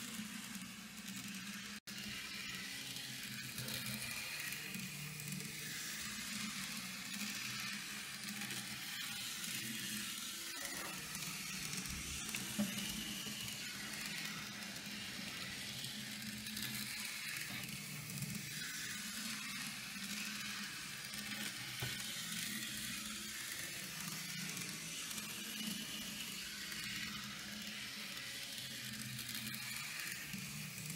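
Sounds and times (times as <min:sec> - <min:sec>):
model tram motor hum: 0:10.6 - 0:19.6.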